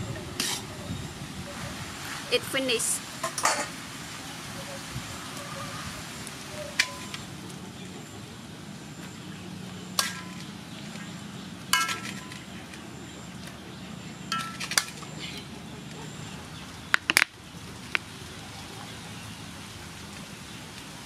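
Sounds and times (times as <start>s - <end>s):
metal utensil clinking on a wok: 3.2s - 3.7s, 11.7s - 12.5s, 14.3s - 15.0s.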